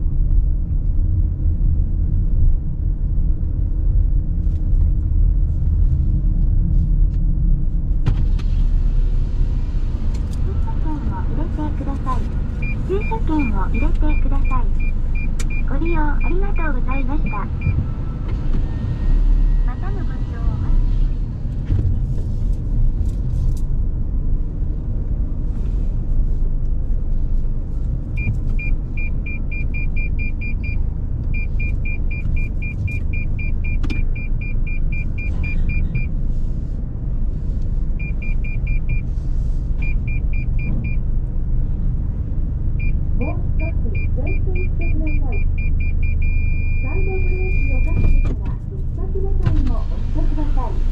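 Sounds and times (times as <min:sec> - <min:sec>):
car engine and road rumble: 0:00.0 - 0:50.9
parking sensor beeps: 0:10.7 - 0:17.8, 0:28.2 - 0:36.2, 0:38.0 - 0:39.1, 0:39.8 - 0:41.0, 0:42.8 - 0:48.4.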